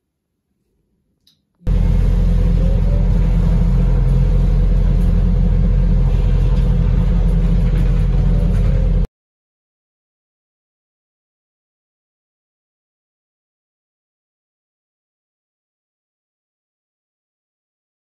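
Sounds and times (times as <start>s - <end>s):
bus engine and road rumble: 1.7s - 9.1s.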